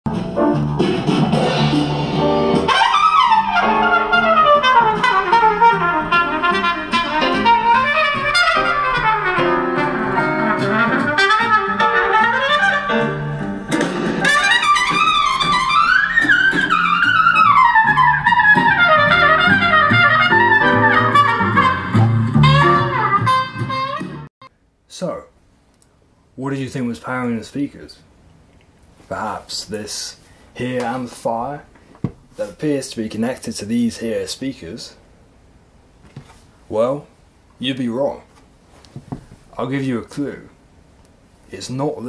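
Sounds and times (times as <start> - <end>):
music through loudspeakers: 0.1 - 24.3.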